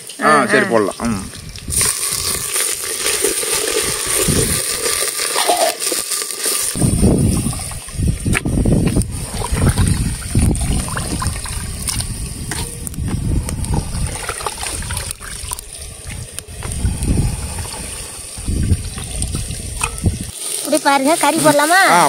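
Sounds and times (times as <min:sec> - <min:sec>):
water splashing and sloshing: 0:06.6 - 0:22.0.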